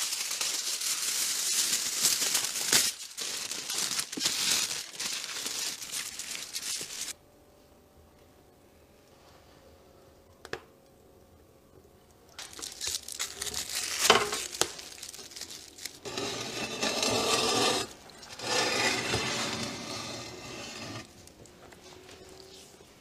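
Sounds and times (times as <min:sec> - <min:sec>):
aluminium foil crinkling: 0:00.0 - 0:07.2, 0:12.3 - 0:16.1
iron pan scraping over stone: 0:16.0 - 0:21.1.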